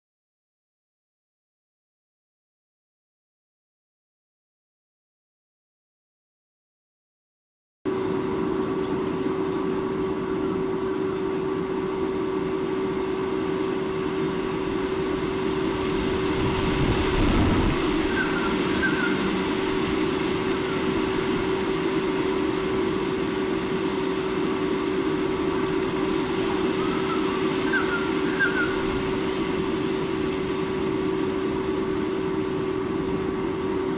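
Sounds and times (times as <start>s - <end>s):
constant low hum: 7.9s - 33.9s
rushing outdoor noise: 7.9s - 33.9s.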